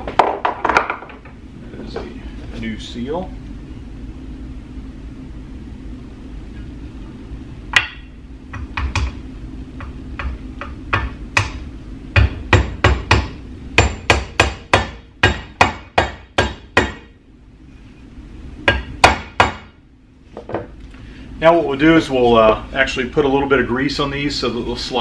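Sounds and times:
hammer tapping: 7.8 - 9.2, 9.8 - 17.1.

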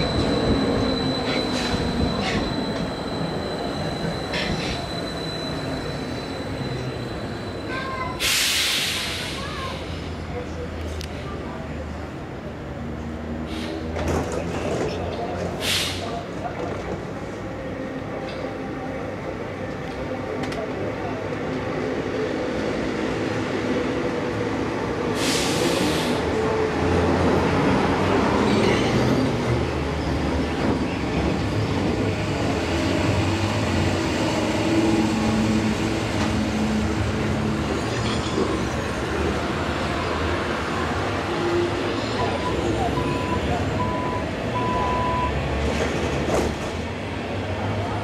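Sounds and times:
wheels and brakes squealing: 0.0 - 10.2, 37.6 - 40.0.

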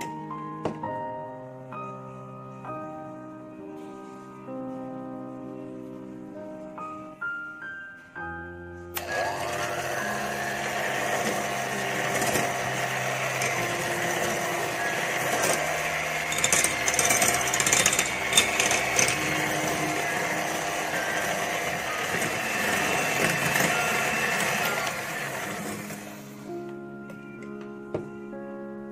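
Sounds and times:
soft piano music: 0.0 - 28.9
electric hand mixer whirring: 9.0 - 26.7
clattering: 13.2 - 24.9.

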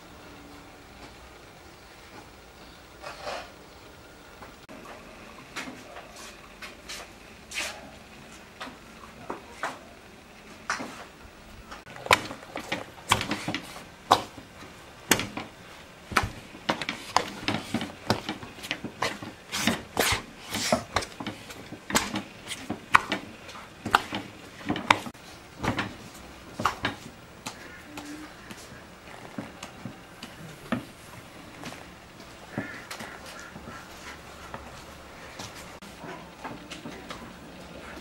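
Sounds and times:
hands kneading dough in metal bowl: 11.9 - 38.0.

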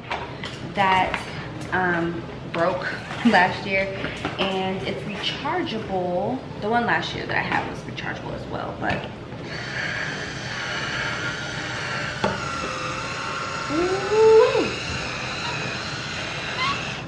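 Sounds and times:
electric wine opener motor whirring: 9.4 - 17.0
short squeaky rising tone: 13.7 - 17.0.

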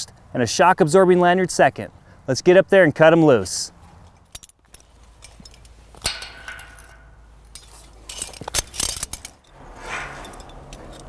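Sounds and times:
metal harness hardware clinking: 4.0 - 11.0.

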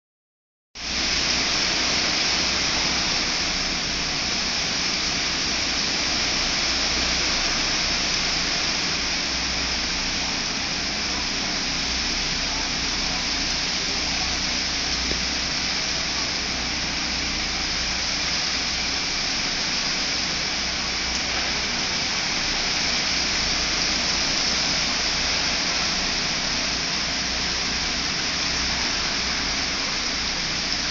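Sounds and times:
heavy rain hissing: 0.8 - 30.9
low rumble of wind: 0.8 - 30.9.

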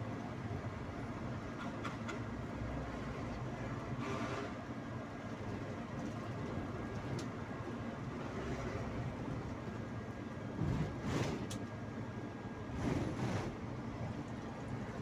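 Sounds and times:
bus engine and road noise: 0.0 - 15.0.

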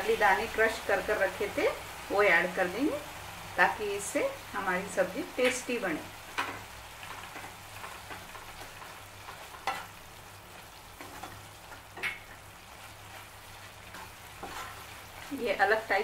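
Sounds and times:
food sizzling in a pan: 0.0 - 16.0
spatula strokes against pan: 10.9 - 15.4.

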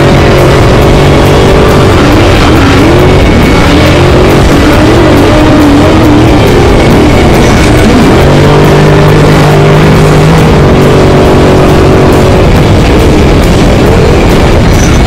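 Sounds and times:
loud off-road vehicle engine: 0.0 - 15.0
rattle and rush of dirt: 0.0 - 15.0.

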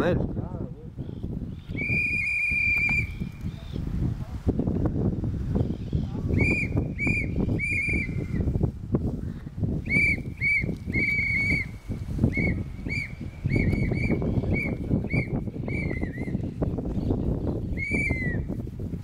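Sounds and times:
whistle shrill blasts: 1.7 - 3.2, 6.4 - 8.4, 9.9 - 16.3, 17.8 - 18.5.

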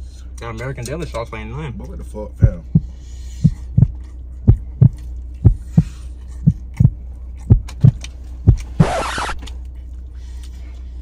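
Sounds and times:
steady low hum: 0.0 - 11.0
heartbeat thumps: 2.4 - 9.4.

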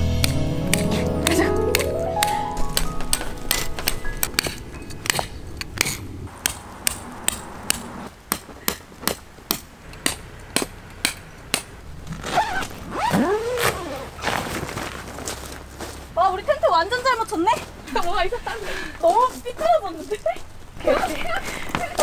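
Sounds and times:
mallet hammering tent pegs: 0.1 - 11.8
rising and falling squeak: 12.0 - 14.5.

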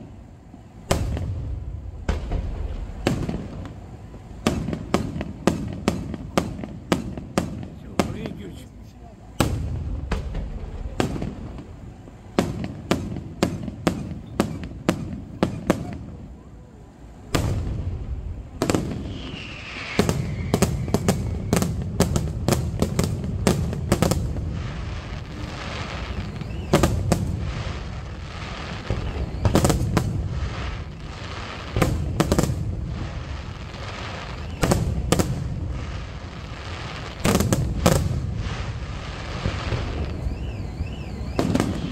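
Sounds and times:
continuous rumbling: 0.0 - 41.9
firework shells bursting in bangs: 0.8 - 8.6, 9.4 - 16.2, 17.3 - 41.9.

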